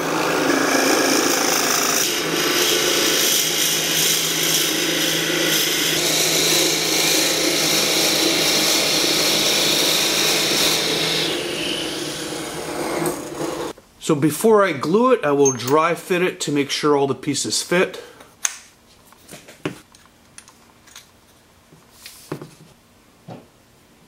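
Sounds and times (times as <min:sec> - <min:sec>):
drill bit cutting wood: 0:00.0 - 0:13.7.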